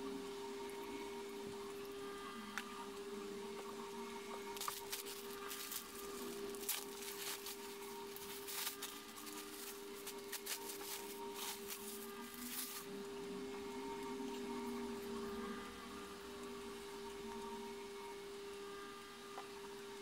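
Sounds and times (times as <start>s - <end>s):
low electrical hum: 0.0s - 20.0s
plastic bags crinkling: 4.5s - 12.9s.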